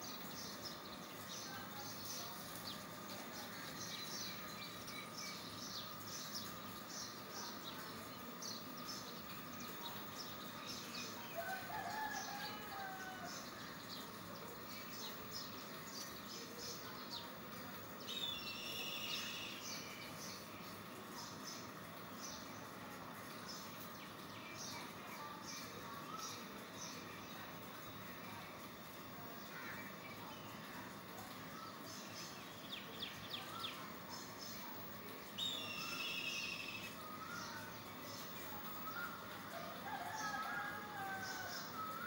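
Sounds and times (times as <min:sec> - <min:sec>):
small birds chirping: 0:00.0 - 0:42.0
longer lower bird call: 0:18.1 - 0:20.0, 0:35.3 - 0:37.8
faint steady high tone: 0:34.6 - 0:39.4.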